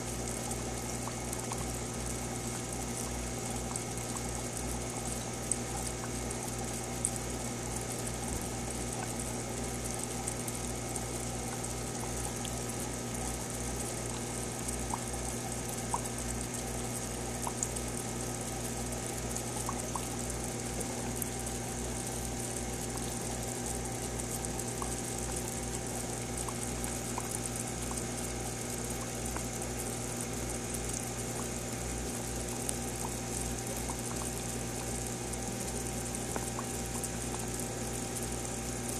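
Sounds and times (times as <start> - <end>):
aquarium pump humming: 0.0 - 38.9
water bubbling: 19.0 - 29.6.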